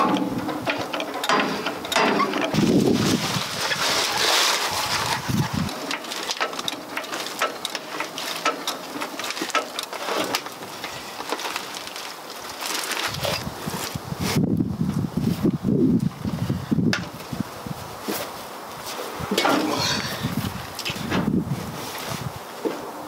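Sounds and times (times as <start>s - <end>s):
heavy metal clunks: 0.0s - 2.8s
floor jack clicking and knocking: 0.0s - 11.6s.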